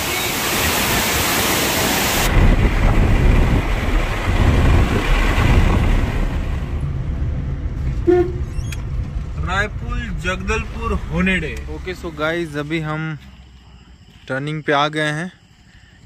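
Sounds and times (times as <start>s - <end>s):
waterfall roaring over rock: 0.0s - 6.7s
car cabin road and engine rumble: 2.4s - 14.1s.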